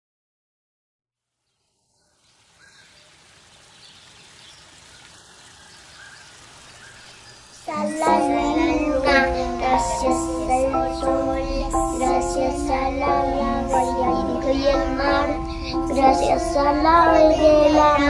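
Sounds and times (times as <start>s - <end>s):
faint steady hiss: 1.2s - 18.0s
children's song music: 7.6s - 18.0s.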